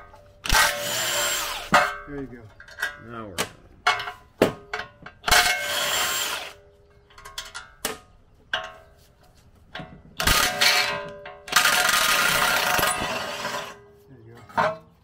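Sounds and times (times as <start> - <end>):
impact wrench running: 0.5 - 1.8, 10.2 - 13.8.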